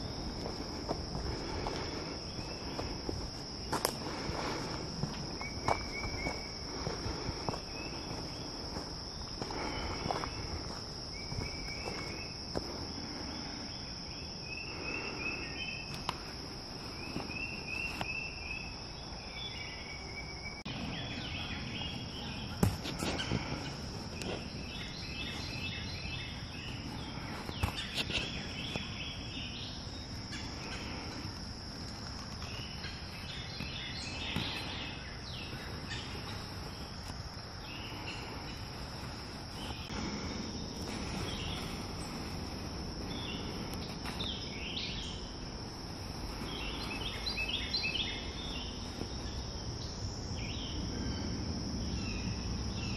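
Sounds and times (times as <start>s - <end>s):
birds singing: 0.0s - 52.9s
high-pitched insect drone: 0.0s - 52.9s.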